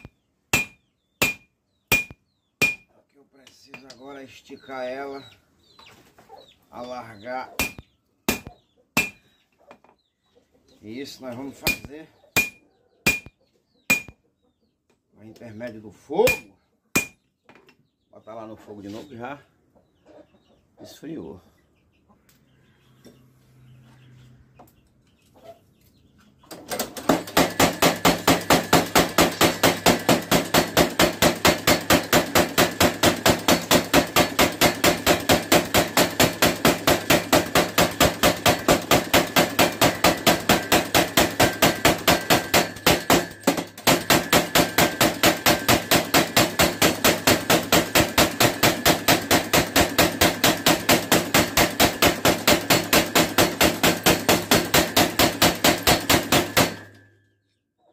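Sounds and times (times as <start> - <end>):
power hammer pounding steel: 0.0 - 2.9, 7.6 - 9.2, 11.6 - 13.3, 13.9 - 14.1, 16.3 - 17.2, 27.0 - 57.0.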